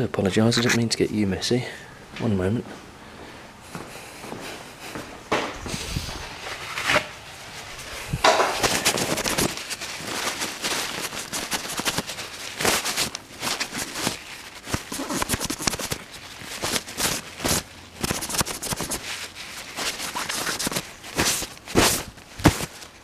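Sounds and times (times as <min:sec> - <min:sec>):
cloth rubbing on microphone: 0:00.4 - 0:00.9, 0:05.6 - 0:23.0.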